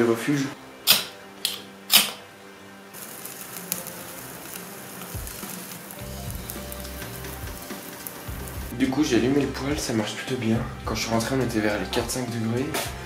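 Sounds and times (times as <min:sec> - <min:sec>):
wood fire crackling: 0:03.0 - 0:10.0.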